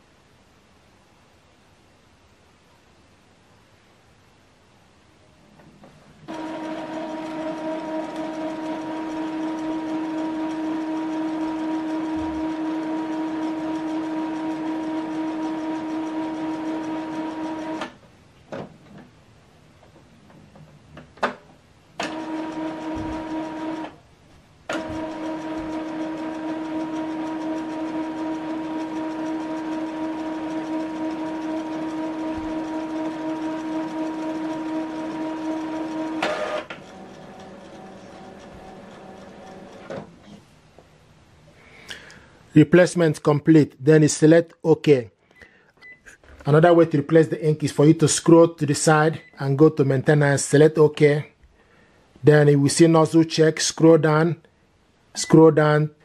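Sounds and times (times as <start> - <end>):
printer motor whine: 6.3 - 18.0, 22.0 - 24.0, 24.7 - 40.3.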